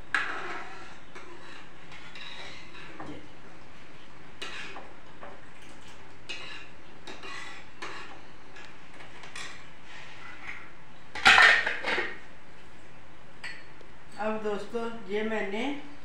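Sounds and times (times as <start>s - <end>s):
metal ladle scraping a pot: 0.1s - 3.0s, 4.4s - 4.8s, 6.3s - 8.2s
metal utensils clattering: 11.2s - 12.2s.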